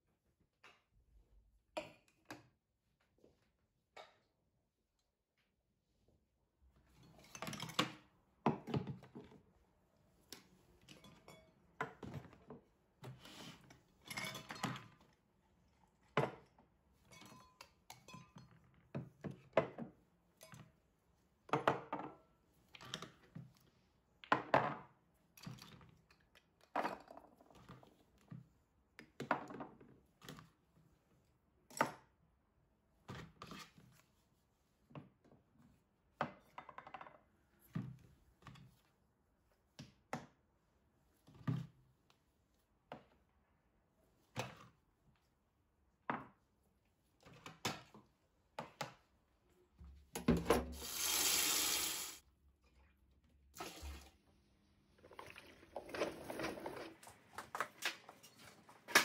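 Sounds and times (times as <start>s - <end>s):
bottles and jars clinking on table: 14.1s - 14.9s.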